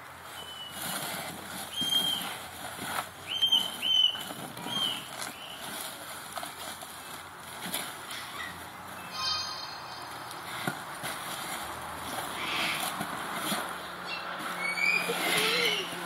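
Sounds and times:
short high chirps: 9.0 - 10.6.

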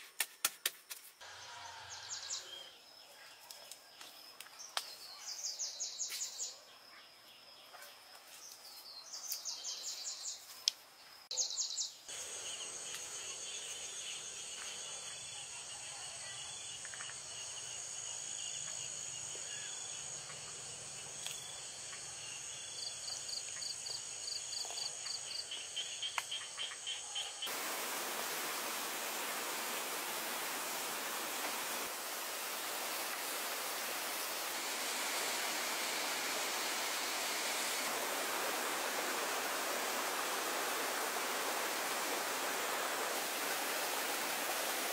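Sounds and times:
crickets and insects chirring: 1.2 - 44.9
small waterfall rushing: 27.5 - 44.9.

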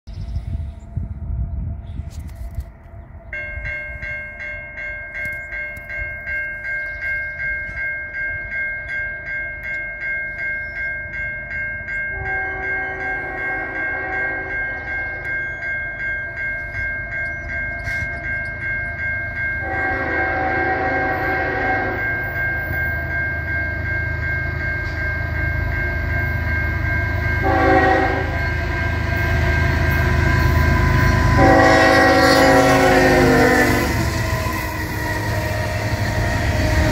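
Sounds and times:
railroad crossing bell ringing: 2.8 - 36.9
diesel locomotive rumble: 10.9 - 36.9
locomotive air horn blasts: 12.1 - 15.2, 19.6 - 22.3, 27.4 - 28.6, 29.9 - 36.9.

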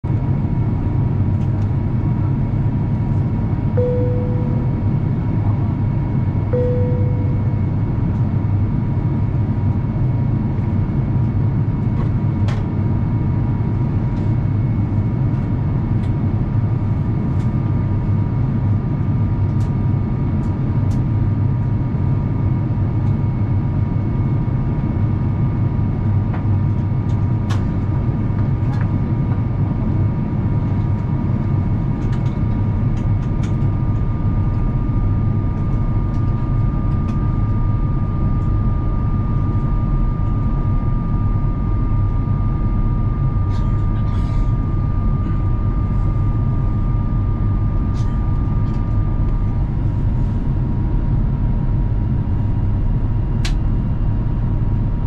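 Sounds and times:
aircraft cabin rumble: 0.1 - 55.0
steady whining tones: 3.8 - 5.2, 6.5 - 8.0.

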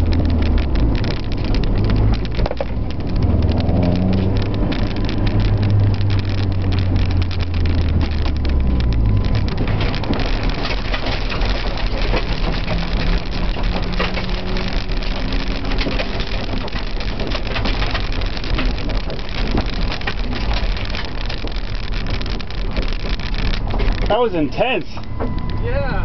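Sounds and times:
stones hitting car underside: 0.0 - 25.6
car engine running: 0.0 - 26.0
tyres rolling over gravel: 0.0 - 26.0.

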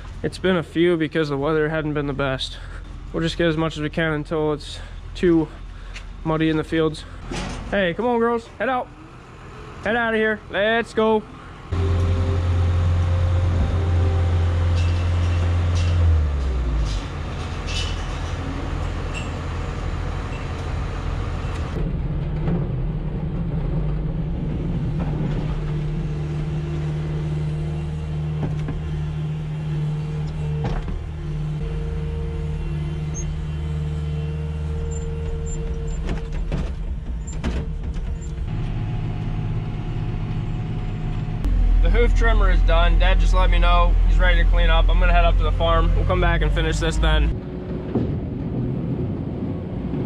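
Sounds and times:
tractor engine: 0.0 - 49.4
diesel engine running: 0.0 - 50.0
metal clanks: 7.2 - 7.8, 14.6 - 19.5.

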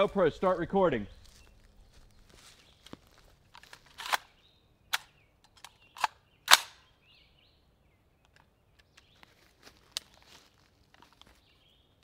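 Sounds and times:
rifle shots: 6.0 - 6.8.

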